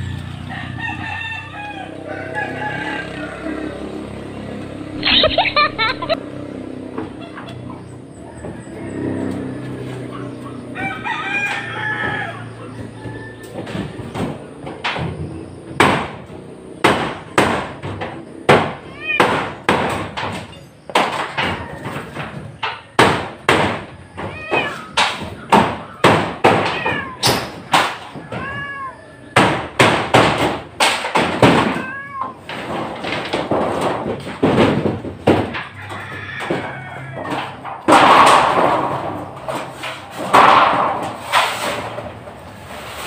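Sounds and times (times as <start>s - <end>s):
banging on corrugated metal roof: 5.0s - 7.3s, 8.2s - 43.0s
cat meowing: 18.9s - 19.3s, 24.3s - 25.0s, 26.7s - 27.3s, 28.2s - 29.3s, 31.7s - 32.5s.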